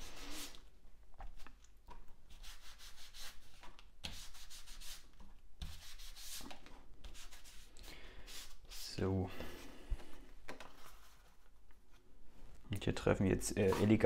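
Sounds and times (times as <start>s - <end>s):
sponge rubbing on cardstock: 0.0s - 0.6s, 2.3s - 9.0s.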